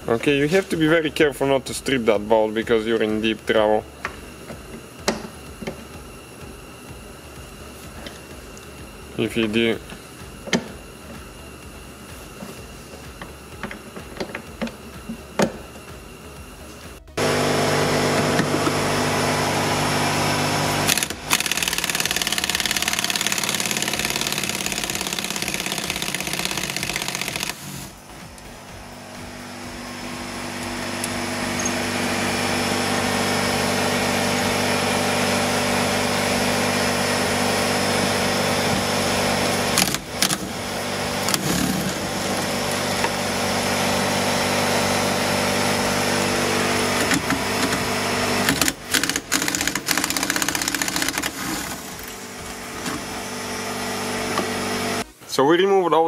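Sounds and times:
pneumatic air tools running: 0:09.8 - 0:55.1.

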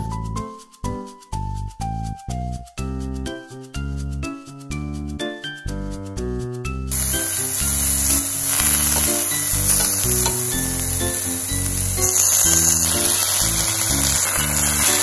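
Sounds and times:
background music: 0:00.0 - 0:15.0
vegetables sizzling in oil: 0:06.9 - 0:15.0.

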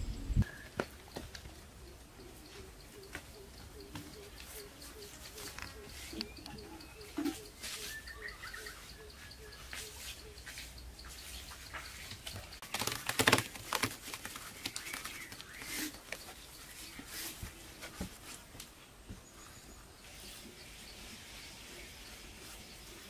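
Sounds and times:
faint bird calls: 0:00.0 - 0:12.2.

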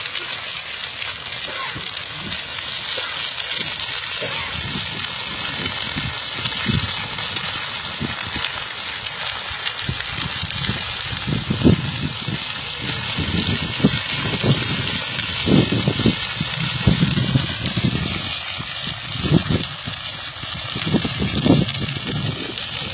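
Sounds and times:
wind buffeting microphone: 0:03.7 - 0:08.6, 0:09.8 - 0:22.9.

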